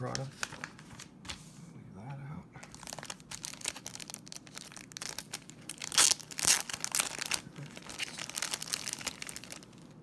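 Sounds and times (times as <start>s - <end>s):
plastic wrap tearing and crinkling: 2.6s - 10.0s.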